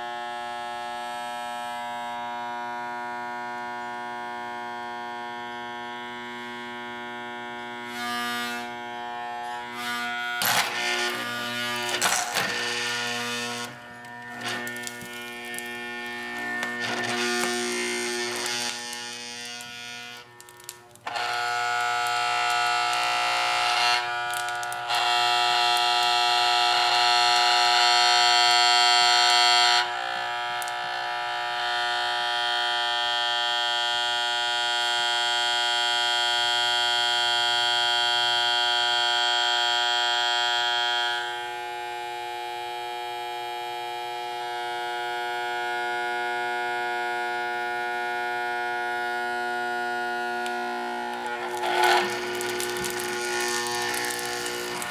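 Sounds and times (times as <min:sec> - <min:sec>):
electric motor high-pitched whine: 0:00.0 - 0:54.9.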